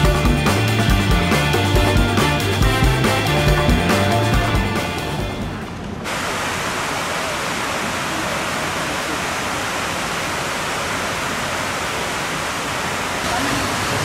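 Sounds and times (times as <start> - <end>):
water cascading waterfall: 5.5 - 14.0.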